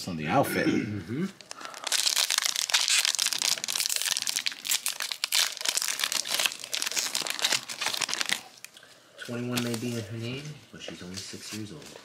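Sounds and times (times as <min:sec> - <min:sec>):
foil wrapper crinkling: 0:01.4 - 0:10.5.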